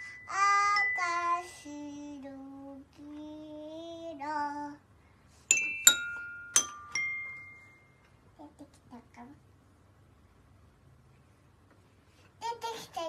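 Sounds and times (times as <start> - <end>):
toy piano notes: 0.0 - 1.5, 5.5 - 7.8
toddler singing: 12.4 - 13.0.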